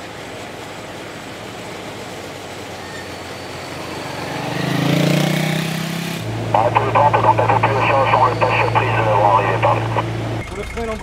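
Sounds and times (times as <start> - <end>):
off-road vehicle engine: 0.0 - 11.0
vehicles driving through mud and water: 3.2 - 11.0.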